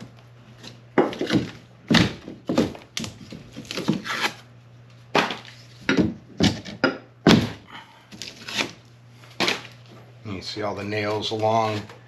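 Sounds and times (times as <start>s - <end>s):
drywall knocks and thuds: 1.0s - 4.1s, 5.2s - 7.7s.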